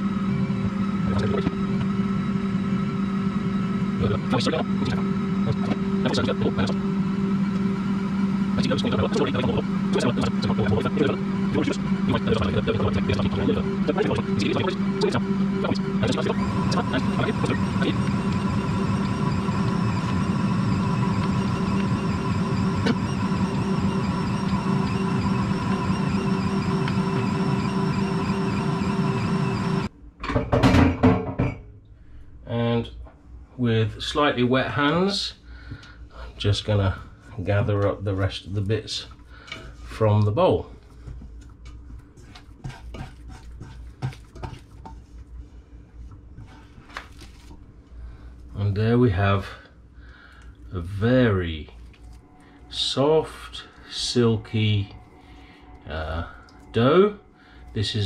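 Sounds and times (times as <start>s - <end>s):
stand mixer kneading dough: 0.0s - 29.9s, 42.2s - 45.1s
hands squelching dough: 41.0s - 45.3s.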